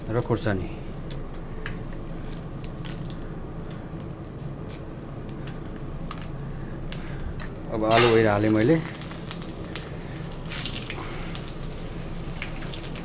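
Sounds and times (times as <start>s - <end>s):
spices sizzling in hot oil: 7.8s - 13.0s.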